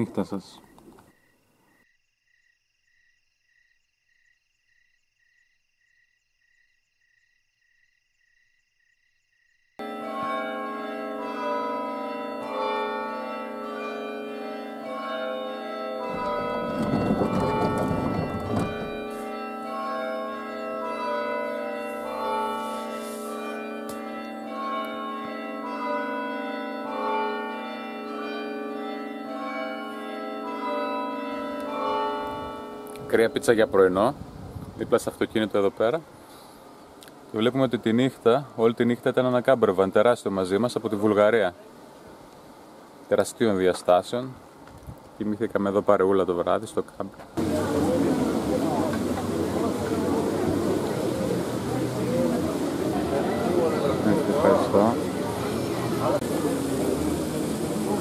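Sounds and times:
crickets chirping: 0.0s - 9.8s
high insect trill: 0.0s - 9.8s
slow organ-like melody: 9.8s - 34.2s.

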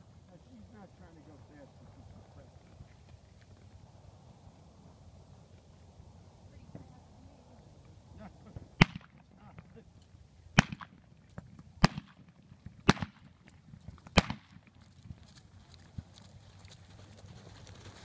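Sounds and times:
blank gunshots: 8.8s - 9.7s, 10.6s - 11.0s, 11.8s - 13.3s, 14.1s - 14.6s.

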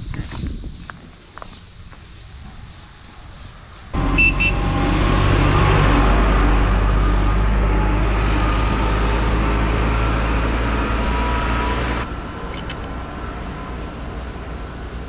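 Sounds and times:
road and tyre noise: 0.0s - 15.0s
diesel engine drone: 3.8s - 15.0s.

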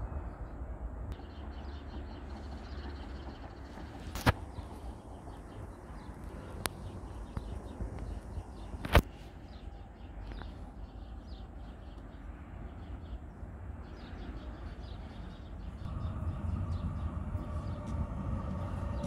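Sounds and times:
small birds chirping: 1.1s - 19.0s
low outdoor rumble: 9.5s - 19.0s.

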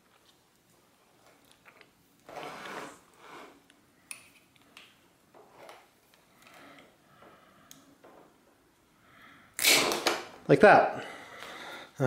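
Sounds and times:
cable housing rustling and rubbing: 2.2s - 3.7s.

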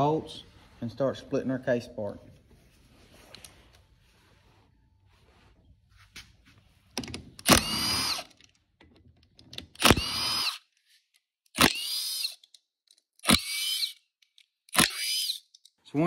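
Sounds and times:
cordless ratchet motor whine: 7.4s - 8.4s, 9.8s - 10.7s, 11.6s - 12.5s, 13.2s - 14.1s, 14.7s - 15.5s.

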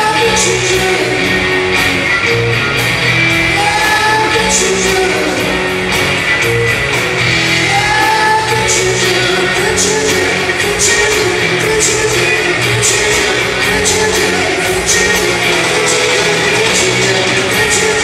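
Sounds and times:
bass guitar: 0.0s - 18.0s
drum kit with cymbals: 0.0s - 18.0s
electric guitar: 0.0s - 18.0s
keyboard: 0.0s - 18.0s.

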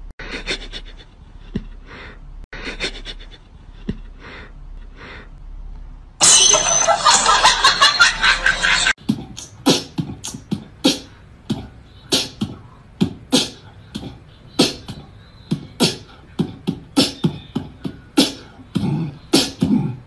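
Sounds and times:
person beatboxing: 9.0s - 20.0s.

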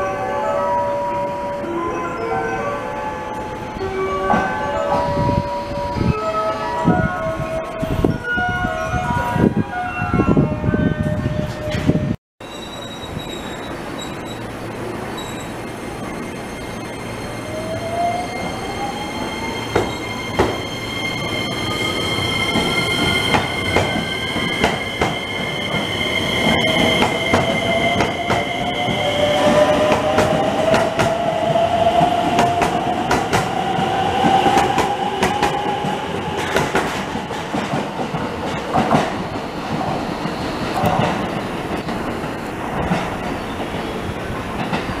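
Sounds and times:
high wheel squeal: 12.4s - 32.3s.

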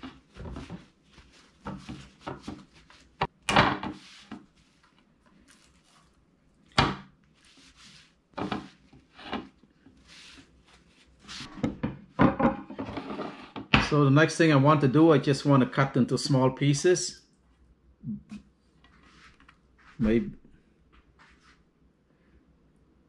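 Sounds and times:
paper towel rubbing on fish: 0.0s - 3.2s, 7.4s - 8.9s, 10.0s - 11.5s.

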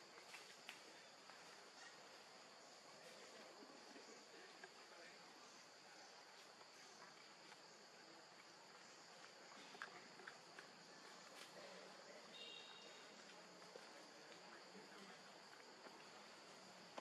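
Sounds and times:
insect chorus drone: 0.0s - 17.0s
faint chirp: 10.9s - 13.3s.

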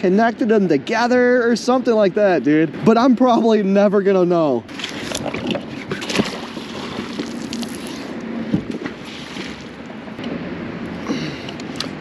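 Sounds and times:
water sloshing: 4.6s - 10.2s
wet rope hauled by hand: 4.7s - 9.8s.

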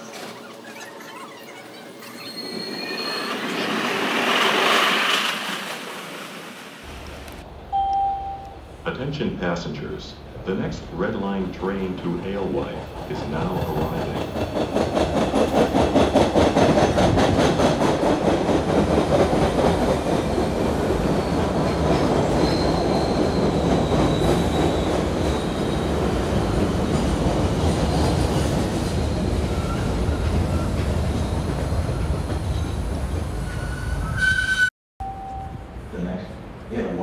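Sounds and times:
high brake squeal: 0.6s - 4.0s, 22.2s - 25.9s, 33.4s - 35.6s
train wheels rumbling on rails: 2.5s - 7.4s, 11.2s - 34.3s.

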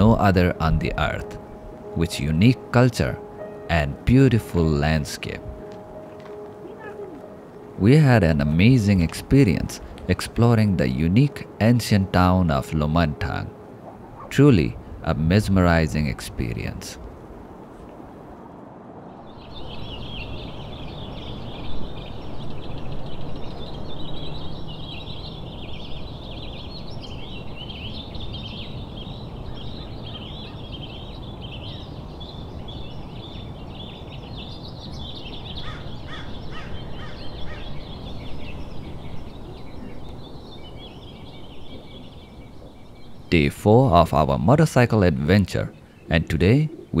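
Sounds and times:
low background noise: 0.0s - 47.0s
small birds chirping: 0.0s - 47.0s.

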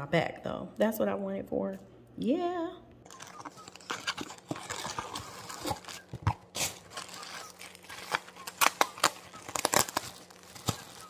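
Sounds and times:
plastic wrap crinkling: 3.1s - 11.0s.

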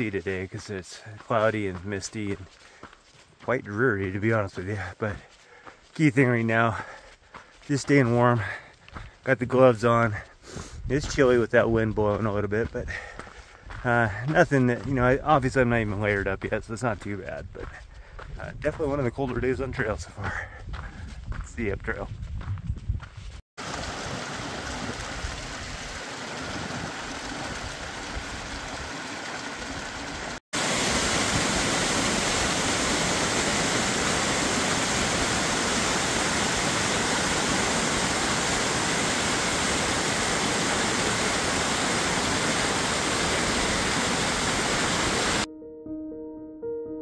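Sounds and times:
brook water splashing: 23.6s - 45.5s
waterfall rushing: 23.6s - 45.5s.

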